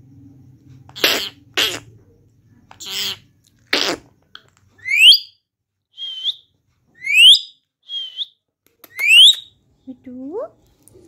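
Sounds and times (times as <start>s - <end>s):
parakeet whistling: 4.8s - 9.6s.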